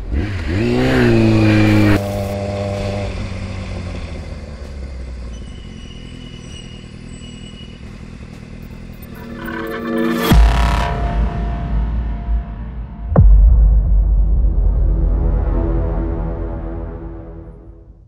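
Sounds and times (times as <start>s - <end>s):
motorcycle engine revving: 0.0s - 11.4s
motorcycle engine running at low speed: 0.0s - 12.3s.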